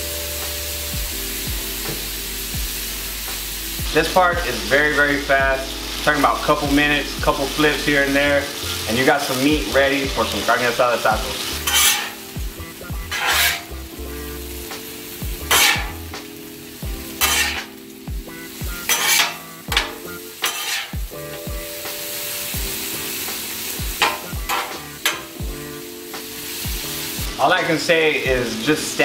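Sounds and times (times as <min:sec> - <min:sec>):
beef sizzling on a griddle: 0:00.0 - 0:29.0
metal spatula scraping griddle: 0:10.4 - 0:12.3, 0:13.0 - 0:13.8, 0:15.4 - 0:16.1, 0:17.1 - 0:17.8, 0:18.8 - 0:21.5, 0:24.0 - 0:25.4.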